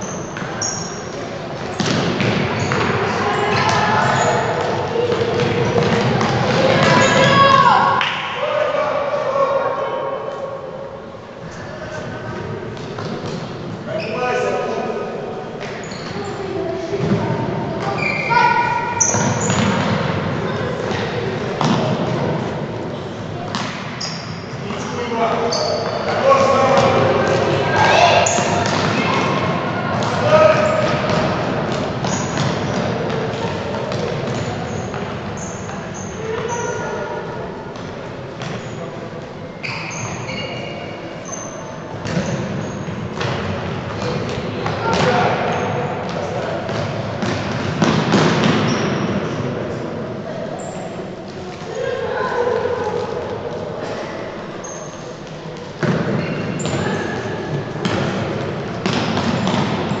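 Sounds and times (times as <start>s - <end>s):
sneakers squeaking on wooden court: 0.0s - 7.7s, 15.6s - 20.2s, 23.0s - 37.1s, 38.4s - 38.9s, 39.5s - 49.3s, 50.6s - 53.3s, 54.6s - 60.0s
distant children shouting: 2.9s - 10.4s
faint shouts: 6.3s - 10.6s, 17.8s - 19.3s, 26.3s - 30.8s.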